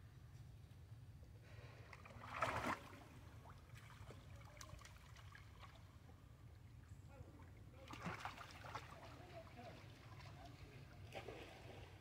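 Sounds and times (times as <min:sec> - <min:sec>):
water lapping and dripping: 0:01.8 - 0:06.8, 0:07.5 - 0:12.0.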